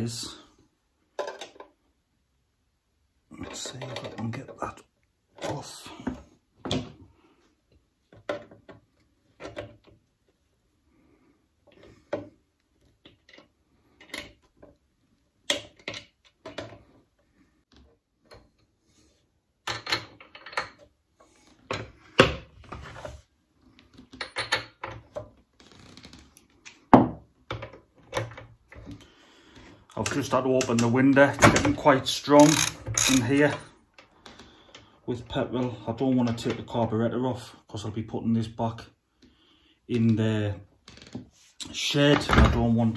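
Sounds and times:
hand tools clicking on metal: 0:32.4 - 0:33.6.

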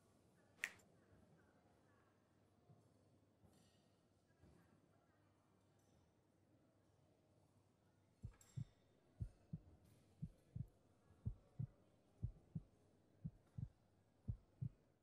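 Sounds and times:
heartbeat thumps: 0:08.2 - 0:13.7, 0:14.3 - 0:14.9.

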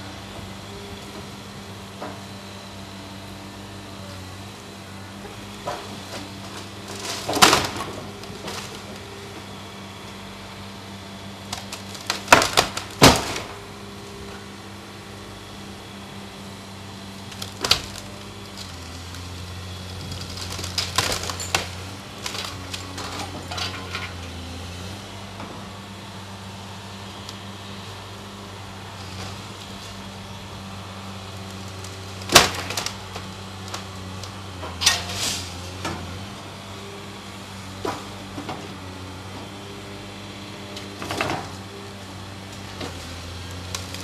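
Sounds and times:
diesel engine running: 0:00.0 - 0:44.0
structure cracking and crashing: 0:06.6 - 0:09.0, 0:11.5 - 0:13.5, 0:17.3 - 0:24.2, 0:31.6 - 0:33.9.

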